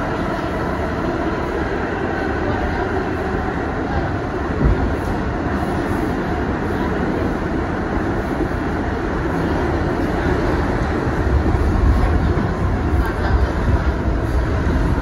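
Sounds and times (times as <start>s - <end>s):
subway wheels rumbling on rail: 0.0s - 15.0s.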